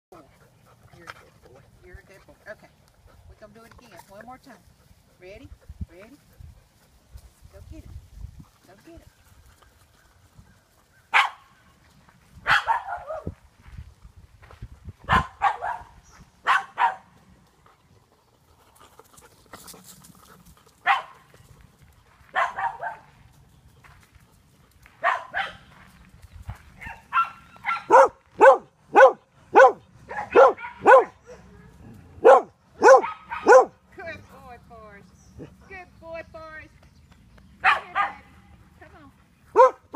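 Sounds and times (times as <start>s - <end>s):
dog barking: 11.1s - 11.5s, 12.5s - 13.3s, 15.1s - 17.1s, 20.8s - 21.2s, 22.3s - 23.1s, 25.0s - 25.7s, 26.8s - 31.4s, 32.2s - 33.8s, 37.6s - 38.3s, 39.5s - 39.9s.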